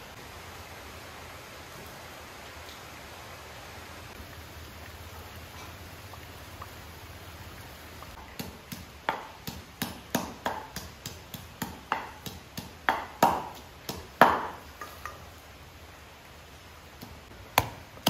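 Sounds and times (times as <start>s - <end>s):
blade chopping on a board: 8.4s - 14.6s.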